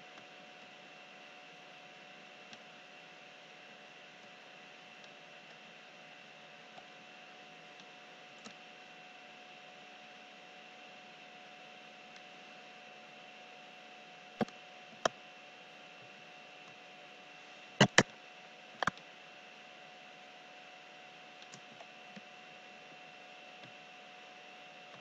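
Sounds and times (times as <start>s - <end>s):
faint steady whine: 0.0s - 25.0s
sharp clicks: 17.8s - 18.1s.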